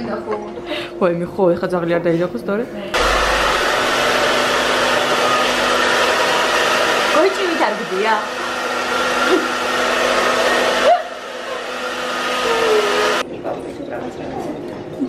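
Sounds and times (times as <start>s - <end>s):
hair dryer blowing: 3.0s - 13.2s.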